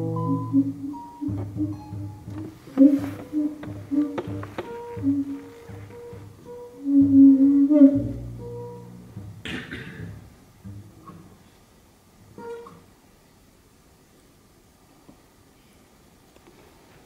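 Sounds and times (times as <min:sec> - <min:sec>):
double bass: 0:00.0 - 0:11.6
guitars playing free jazz: 0:00.0 - 0:13.0.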